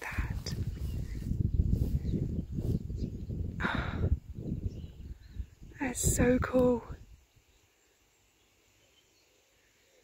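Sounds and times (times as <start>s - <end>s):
wind buffeting microphone: 0.0s - 7.6s.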